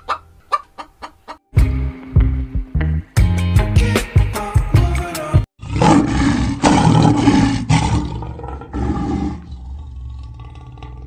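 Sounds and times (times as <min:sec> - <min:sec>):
lions roaring: 0:05.6 - 0:11.0.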